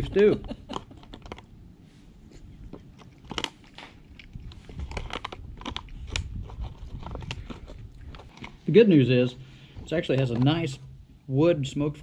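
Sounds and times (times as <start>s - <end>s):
person chewing: 2.3s - 8.7s.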